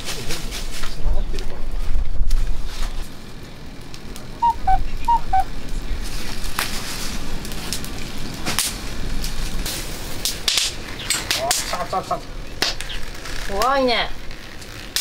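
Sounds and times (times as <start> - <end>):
firewood crackling: 0.0 - 15.0
sharp pops of fire: 6.0 - 15.0.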